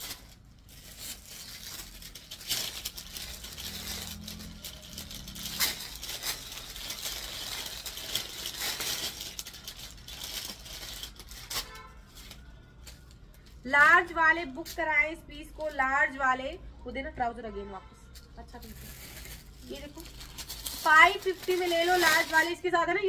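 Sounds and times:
plastic packaging crinkling: 0:00.0 - 0:13.4, 0:18.6 - 0:22.8.

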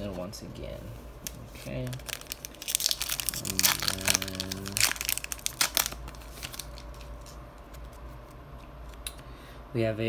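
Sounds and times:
low steady hum: 0:00.0 - 0:10.0
foil wrapper crinkling and tearing: 0:01.2 - 0:07.9.

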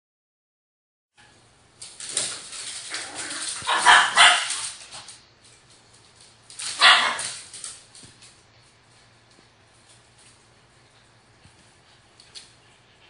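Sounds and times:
small dogs barking: 0:02.9 - 0:04.7, 0:06.7 - 0:07.4.

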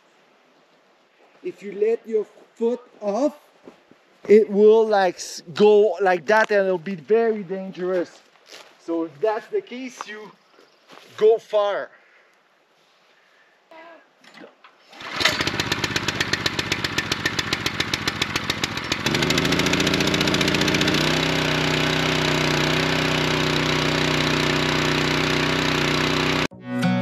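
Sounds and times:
small gasoline engine running: 0:15.0 - 0:26.5.

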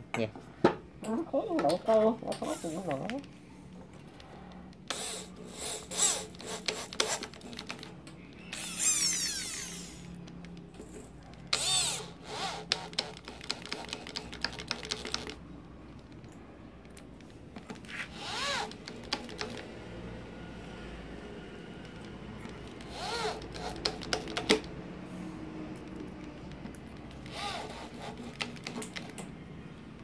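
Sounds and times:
electric drill driving screws: 0:04.9 - 0:07.9, 0:08.5 - 0:10.2, 0:11.5 - 0:14.0, 0:18.0 - 0:19.6, 0:22.7 - 0:24.6, 0:27.1 - 0:29.2.

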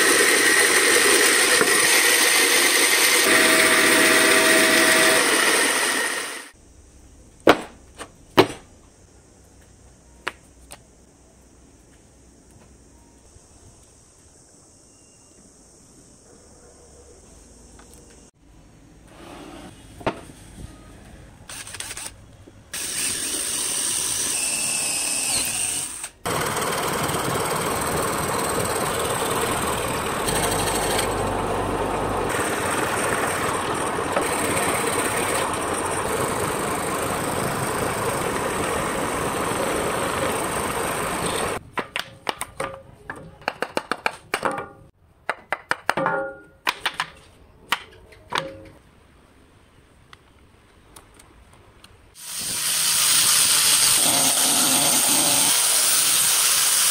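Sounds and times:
scroll saw cutting wood: 0:00.0 - 0:06.6, 0:22.8 - 0:41.6, 0:52.2 - 0:56.9.

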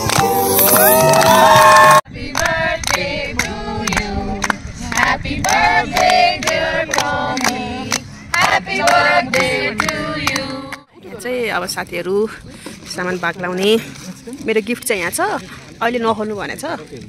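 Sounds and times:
people clapping in time: 0:00.0 - 0:10.8
group singing: 0:00.0 - 0:10.9.

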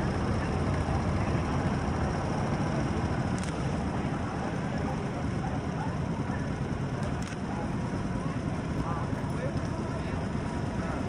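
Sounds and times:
boat engine rumbling: 0:00.0 - 0:11.0
water and air noise: 0:00.0 - 0:11.0.

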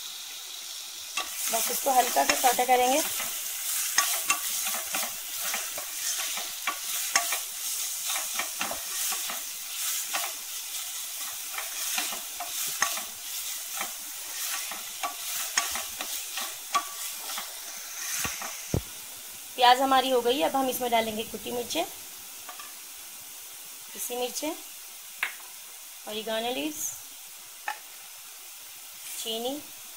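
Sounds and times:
onion sizzling in oil: 0:00.0 - 0:29.9
spoon scraping a pan: 0:01.2 - 0:18.8.

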